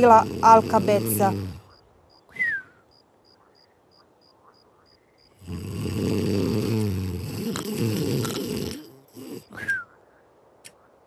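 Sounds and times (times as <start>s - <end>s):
cartoon snore: 0.0s - 1.7s, 5.4s - 9.7s.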